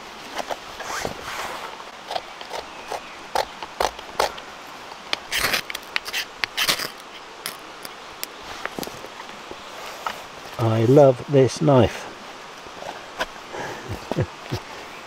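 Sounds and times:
knife scraping ferro rod: 0:05.3 - 0:07.2.

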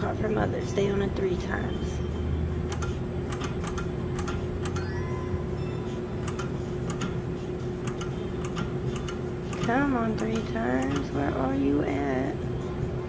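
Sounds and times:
steady electronic hum: 0:00.0 - 0:13.0
game machine sharp clicks: 0:02.6 - 0:05.0, 0:06.2 - 0:07.2, 0:07.8 - 0:11.2
rising electronic chime: 0:04.8 - 0:06.0.

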